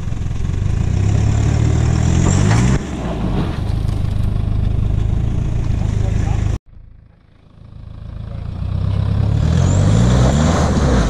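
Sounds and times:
diesel engine revving under load: 0.6 - 6.6, 8.2 - 11.0.

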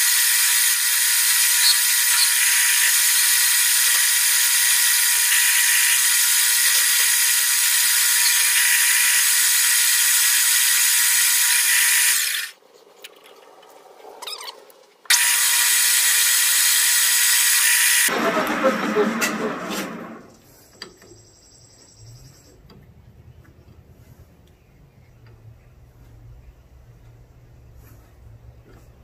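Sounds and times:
metal lathe cutting: 0.0 - 12.5, 15.1 - 20.3.

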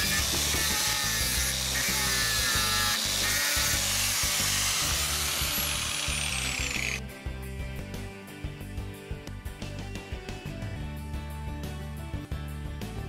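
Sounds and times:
angle grinder cutting steel: 0.0 - 7.0.

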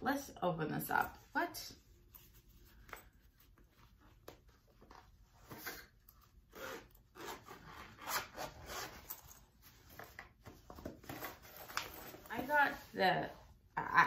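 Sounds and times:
zipper rasping: 6.5 - 9.3.

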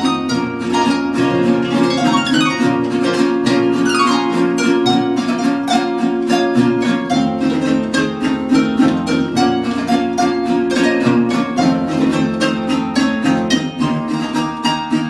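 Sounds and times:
plucked harp notes: 0.0 - 7.3
guitar strumming chords: 0.4 - 5.3
plucked bass line: 1.2 - 5.2.

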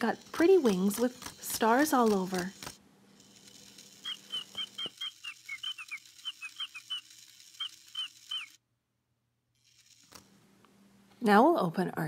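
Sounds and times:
toy chick peeping: 3.5 - 8.6.

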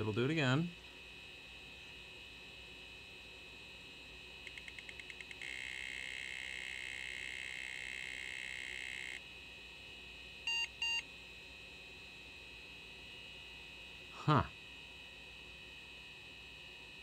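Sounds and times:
disk drive clicking and whirring: 3.8 - 9.3.

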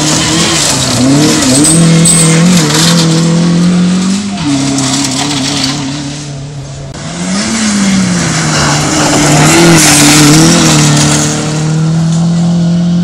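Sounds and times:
rally car engine revving: 0.0 - 13.0
gravel spraying from tyres: 7.3 - 11.8.

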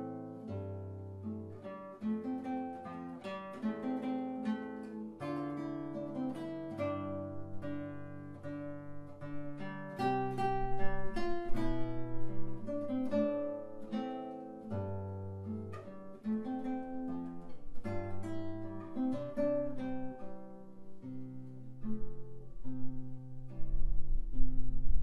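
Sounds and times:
acoustic guitar melody: 0.0 - 25.0.

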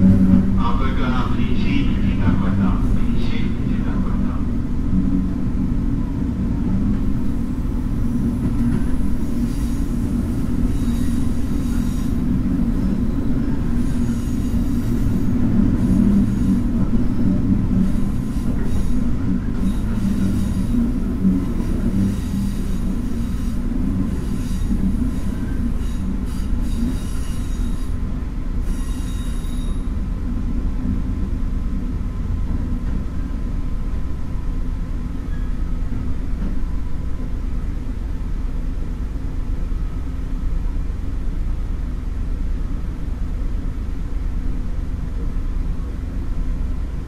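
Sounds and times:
train engine and wheels rumbling: 0.0 - 47.0
high metallic squeal: 10.6 - 12.2, 22.1 - 28.0, 28.6 - 29.9.

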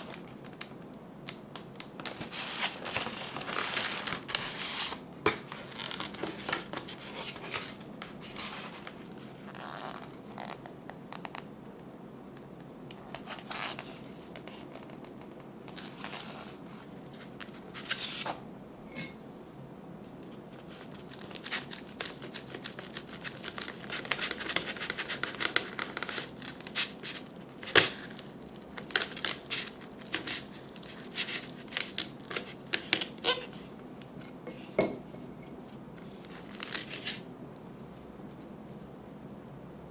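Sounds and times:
plastic packaging crackling: 0.0 - 11.4, 20.5 - 33.6, 36.2 - 37.3.

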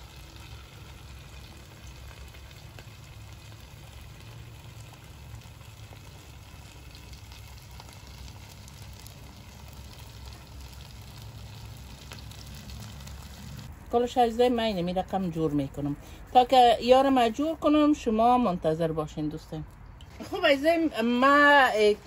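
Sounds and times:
wood fire crackling: 0.0 - 16.2.

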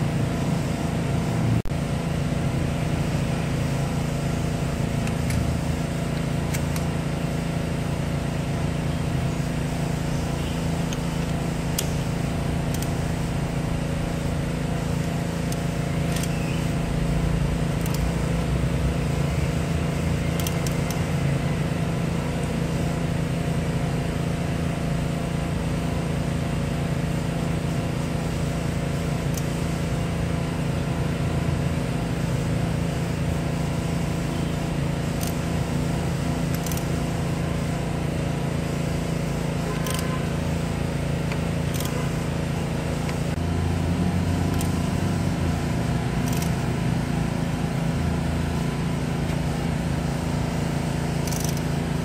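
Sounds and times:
low mechanical hum: 0.0 - 52.0
metal tools clicking: 46.2 - 46.6, 51.2 - 51.6.

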